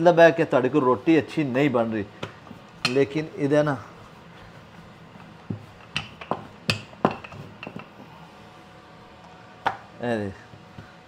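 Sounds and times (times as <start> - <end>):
rolling pin knocking on stone: 5.4 - 7.9.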